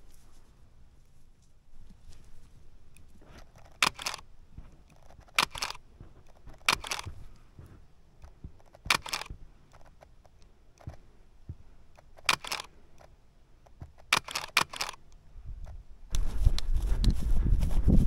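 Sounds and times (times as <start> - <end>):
camera shutter clicks: 3.6 - 4.2, 4.9 - 5.8, 6.5 - 7.2, 8.7 - 9.9, 12.0 - 13.1, 14.0 - 15.0.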